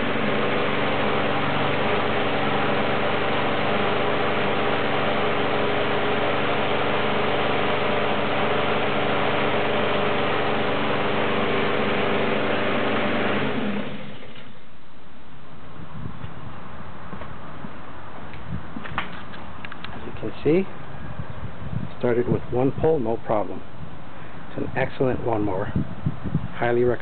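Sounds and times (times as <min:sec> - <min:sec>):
lawn mower engine running: 0:00.0 - 0:14.8.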